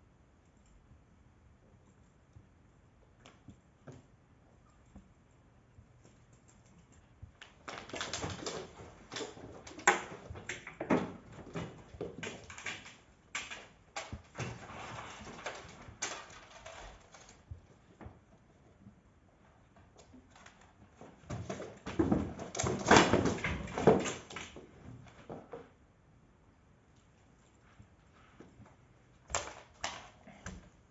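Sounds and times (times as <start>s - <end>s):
cat paws scampering and skidding: 5.8s - 18.7s, 19.4s - 25.6s.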